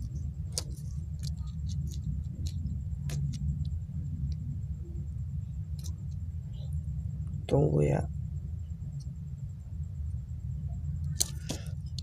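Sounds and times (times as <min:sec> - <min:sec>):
faint ticks and clicks: 0:00.0 - 0:04.5
low background rumble: 0:00.0 - 0:12.0.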